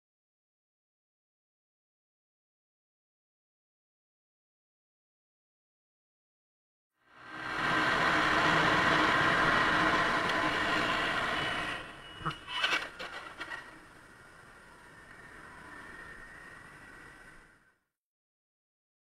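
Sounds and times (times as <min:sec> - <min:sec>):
car road and engine noise: 0:07.1 - 0:17.7.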